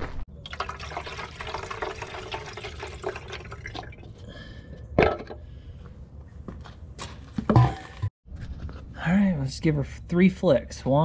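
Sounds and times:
fuel pouring into tank: 0.3s - 4.3s.

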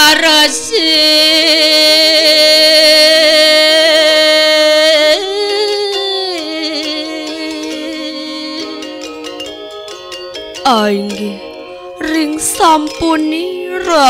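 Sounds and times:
quiet stepped melody: 5.4s - 14.0s.

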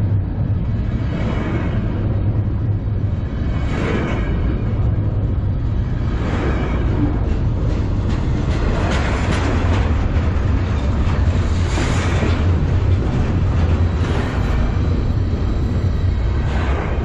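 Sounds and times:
freight train rumbling past: 0.0s - 17.0s
wheels clicking and clattering: 6.2s - 17.0s.

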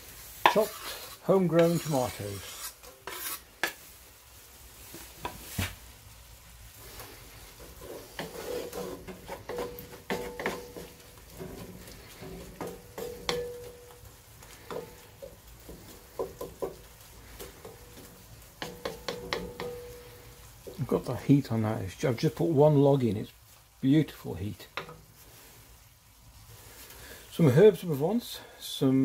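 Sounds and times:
food sizzling in pot: 0.0s - 29.0s
wooden spatula scraping pot: 0.4s - 3.9s, 6.8s - 21.2s.

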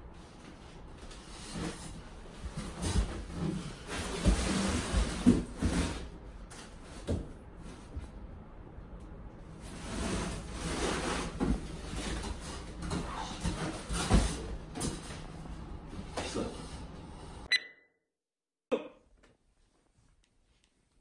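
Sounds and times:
cardboard scraping and knocking: 1.4s - 6.1s.

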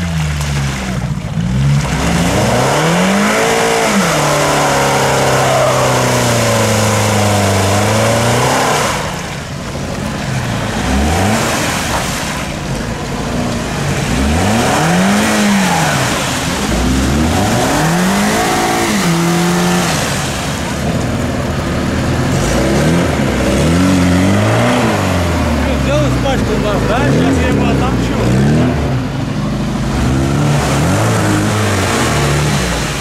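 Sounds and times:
car engine revving: 0.0s - 33.0s.

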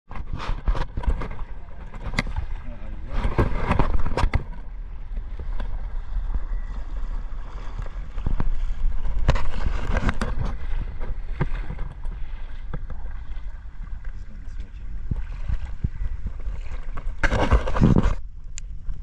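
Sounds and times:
wind rumble on microphone: 0.1s - 19.0s
water rushing and splashing: 1.0s - 18.0s.

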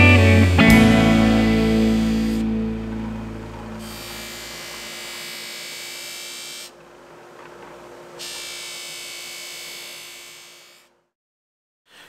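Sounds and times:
bench buffer motor humming: 0.0s - 11.0s
blade hissing on buffing wheel: 1.2s - 6.7s, 8.2s - 10.9s.

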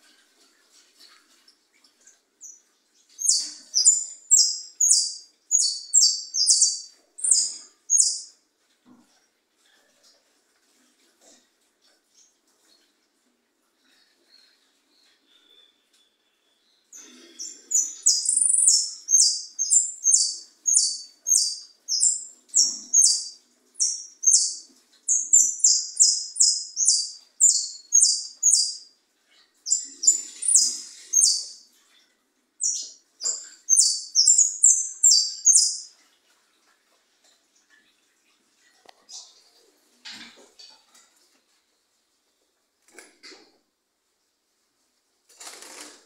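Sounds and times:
finch singing high chirps: 3.2s - 8.4s, 16.9s - 28.9s, 29.6s - 31.7s, 32.6s - 35.9s.

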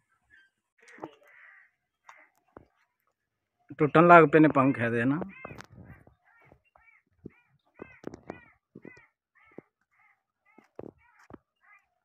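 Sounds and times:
bird giving harsh calls: 5.2s - 11.8s.

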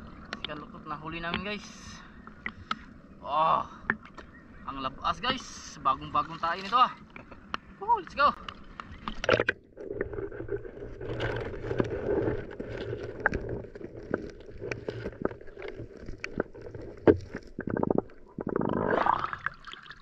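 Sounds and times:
underwater clicks and knocks: 1.2s - 1.6s, 7.1s - 7.7s, 8.4s - 19.3s
rush of water: 6.2s - 20.0s
low underwater rumble: 8.5s - 20.0s.

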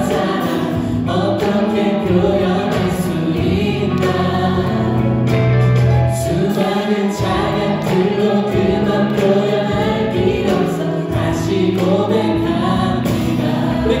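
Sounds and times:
bass guitar: 0.0s - 14.0s
drums: 0.0s - 14.0s
electric guitar: 0.0s - 14.0s
group singing in harmony: 0.0s - 14.0s
keyboard: 0.0s - 14.0s.

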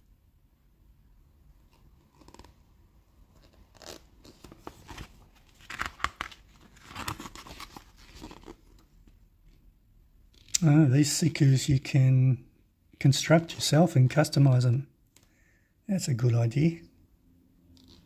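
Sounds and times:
paper pages being flipped: 1.7s - 2.6s, 3.3s - 8.9s.

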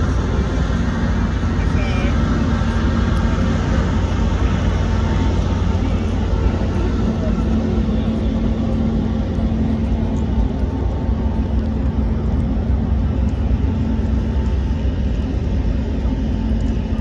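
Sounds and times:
boat diesel engines droning: 0.0s - 17.0s.

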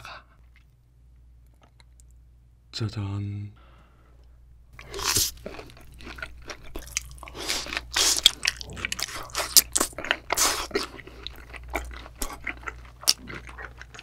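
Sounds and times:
wet chewing: 4.8s - 14.0s.

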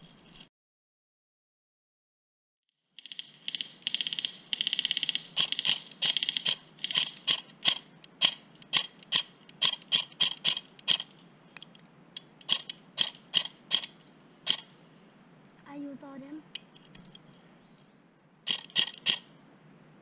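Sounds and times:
airsoft gun firing: 3.0s - 11.1s, 18.5s - 19.3s.

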